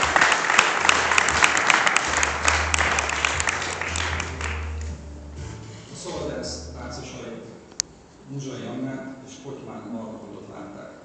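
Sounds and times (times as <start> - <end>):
close hand claps: 0.0 - 5.0
audience applauding: 0.0 - 5.1.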